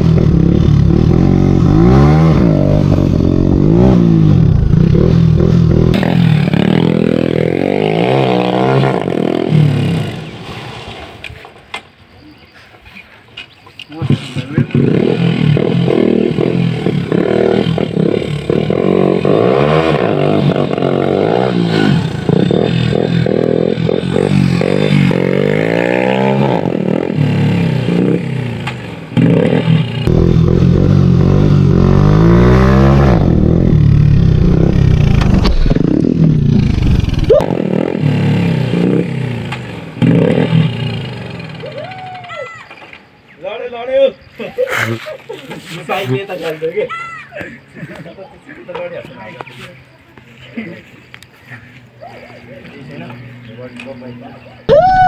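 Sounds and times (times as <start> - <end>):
motorcycle engine revving: 0.0 - 11.2, 13.9 - 41.9.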